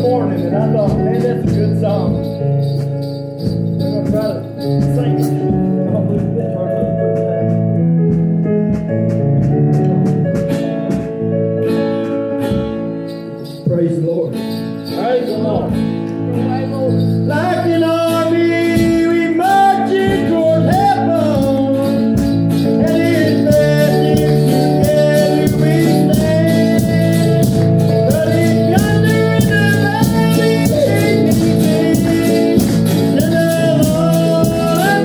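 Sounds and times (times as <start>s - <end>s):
man singing: 0.0s - 2.5s, 13.6s - 35.0s
acoustic guitar strumming: 0.0s - 35.0s.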